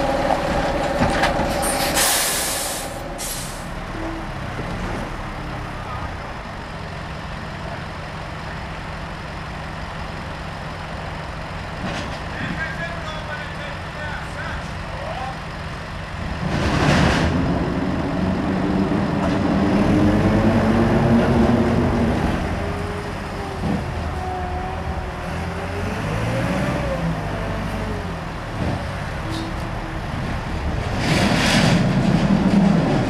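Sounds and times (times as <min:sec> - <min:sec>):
diesel lorry engine: 0:00.0 - 0:33.0
air brake hiss: 0:01.7 - 0:03.7.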